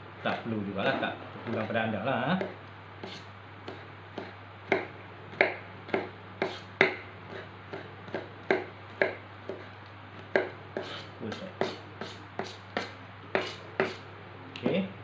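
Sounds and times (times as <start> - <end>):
steady low hum: 0.0 - 15.0
knife chopping on plastic board: 1.4 - 1.8, 2.4 - 14.0.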